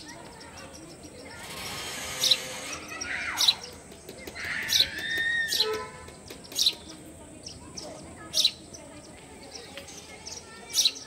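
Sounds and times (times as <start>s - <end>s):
sparrow chirping: 0.0s - 11.0s.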